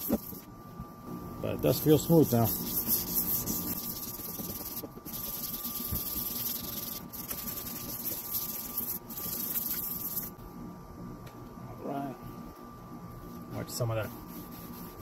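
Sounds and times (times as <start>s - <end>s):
sandpaper scrubbing plastic: 0.0s - 0.5s, 1.8s - 10.3s, 14.0s - 15.0s.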